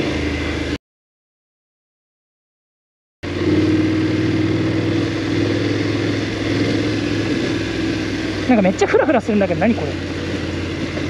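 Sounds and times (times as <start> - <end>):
motorcycle engine running: 0.0 - 0.8, 3.2 - 11.0.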